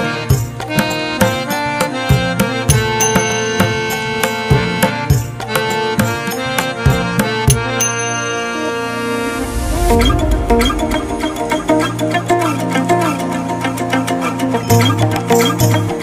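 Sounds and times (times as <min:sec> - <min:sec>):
sustained melodic tones: 0:05.4 - 0:14.6
drum strokes: 0:09.0 - 0:13.0.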